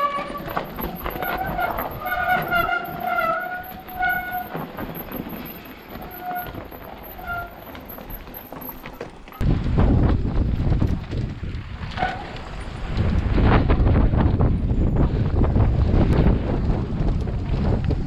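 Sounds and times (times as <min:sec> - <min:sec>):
bike disc brakes squealing: 0:00.0 - 0:09.4
bike rattle and tyre noise: 0:00.0 - 0:18.0.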